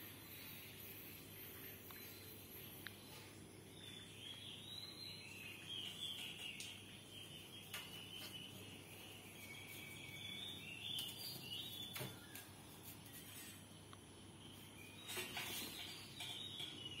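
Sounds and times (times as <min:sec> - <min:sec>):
faint high-pitched chirping: 0:00.0 - 0:17.0.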